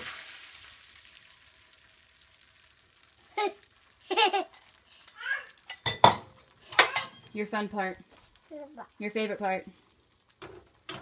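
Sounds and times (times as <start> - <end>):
eggs sizzling in a pan: 0.0 - 11.0
toddler's voice: 3.3 - 3.7, 5.0 - 5.6, 8.5 - 9.0.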